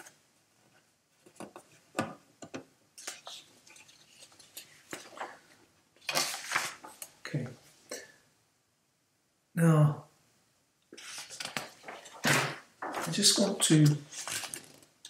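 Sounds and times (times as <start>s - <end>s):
rustling of handled objects: 3.0s - 7.2s, 10.9s - 15.0s.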